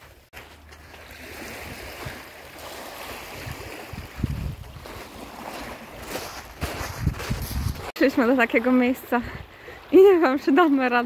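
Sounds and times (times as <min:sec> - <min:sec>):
small waves washing on beach: 0:00.0 - 0:11.0
wind buffeting microphone: 0:03.2 - 0:07.9.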